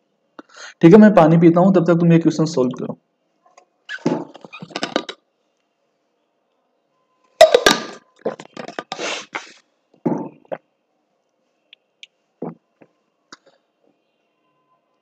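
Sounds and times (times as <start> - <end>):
swallowing sounds: 8.2 - 9.4, 10.1 - 10.6.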